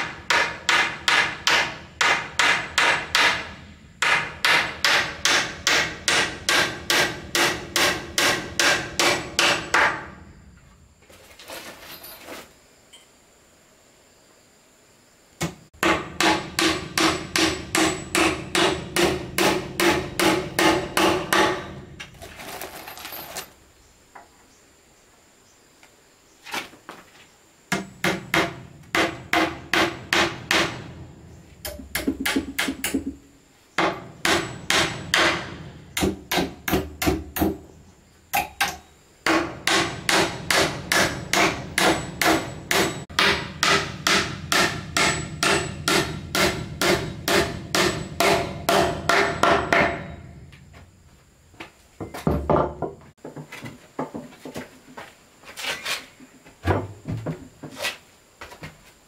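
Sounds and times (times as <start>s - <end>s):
hammer blows on wood: 31.6s - 37.6s, 38.4s - 50.3s
short scraping: 55.5s - 56.3s.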